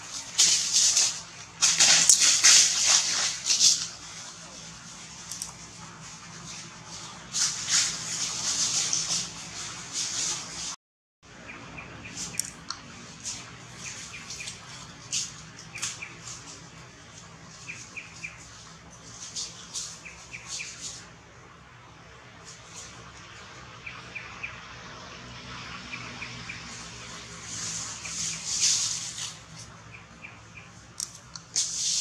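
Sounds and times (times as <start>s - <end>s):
dry leaves rustling and crunching: 0.0s - 10.4s, 27.2s - 29.8s.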